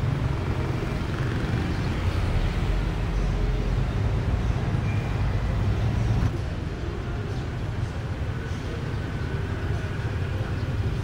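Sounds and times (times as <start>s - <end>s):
bus rumbling: 0.0s - 11.0s
street traffic: 0.0s - 11.0s.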